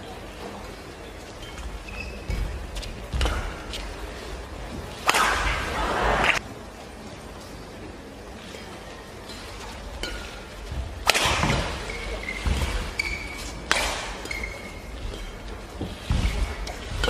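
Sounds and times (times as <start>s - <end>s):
shoe squeaks on court floor: 1.4s - 2.5s, 11.8s - 15.3s
rackets hitting shuttlecock: 5.0s - 6.4s, 11.0s - 17.0s.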